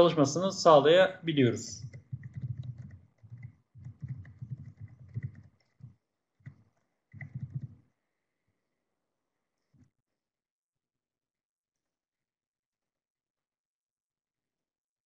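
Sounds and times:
typing on computer keyboard: 1.8s - 7.8s.

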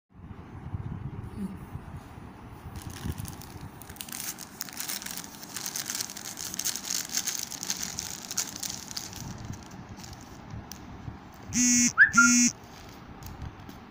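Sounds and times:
plastic mailer bag crinkling: 2.7s - 10.8s.

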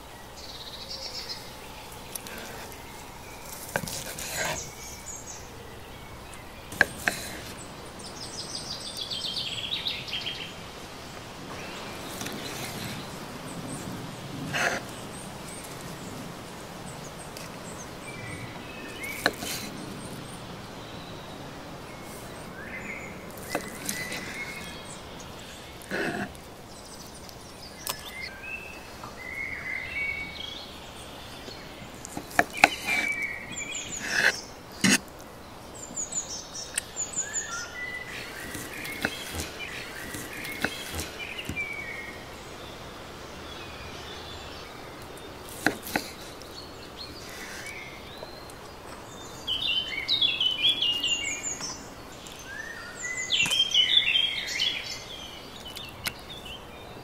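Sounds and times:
birds chirping: 0.0s - 57.0s.

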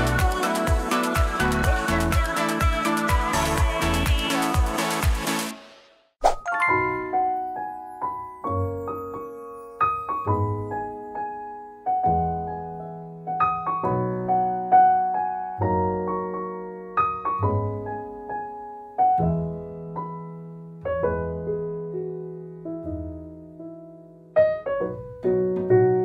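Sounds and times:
slow solo piano chords: 7.0s - 26.0s.

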